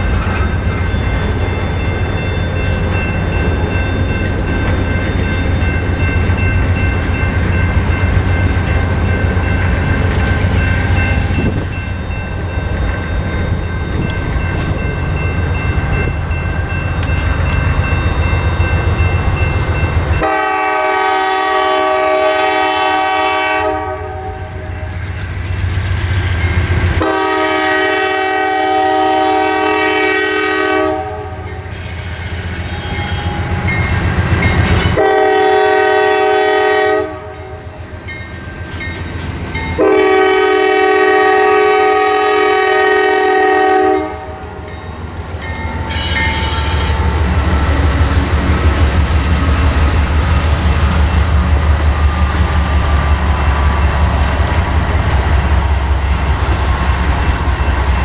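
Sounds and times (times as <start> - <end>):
diesel locomotive engine rumbling: 0.0 - 58.0
locomotive air horn blasts: 20.2 - 24.9, 27.0 - 32.0, 35.0 - 37.6, 39.8 - 44.5, 45.9 - 47.1.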